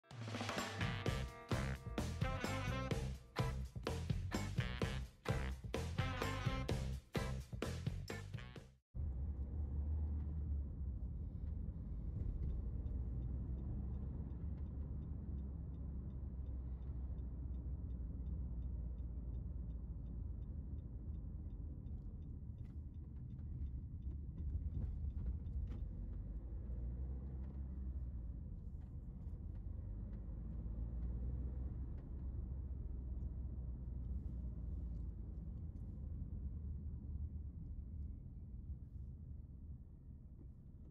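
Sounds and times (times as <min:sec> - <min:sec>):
car engine and tyre noise: 0:09.0 - 0:39.7.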